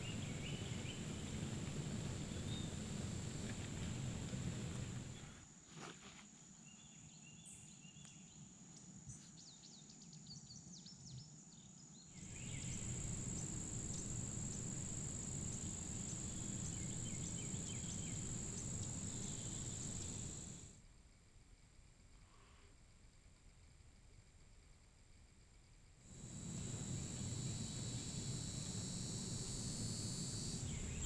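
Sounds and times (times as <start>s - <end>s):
small birds chirping: 0.0s - 5.2s, 12.2s - 20.7s, 26.2s - 31.0s
crickets trilling: 0.0s - 5.3s, 12.2s - 20.7s, 26.1s - 31.0s
low hiss: 0.0s - 5.4s, 12.2s - 25.4s, 26.1s - 31.0s.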